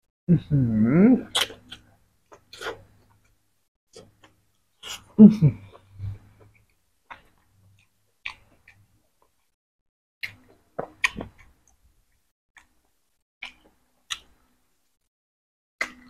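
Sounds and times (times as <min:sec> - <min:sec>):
person chewing: 0:01.2 - 0:03.4, 0:04.0 - 0:09.6, 0:10.2 - 0:11.8
wet mouth smacks and clicks: 0:01.4 - 0:01.8.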